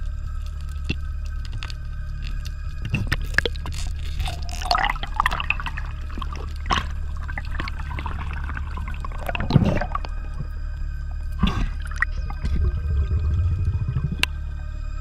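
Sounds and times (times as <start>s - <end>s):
low rumble: 0.0s - 15.0s
gurgling splash: 2.8s - 14.5s
water gurgling underwater: 2.8s - 14.5s.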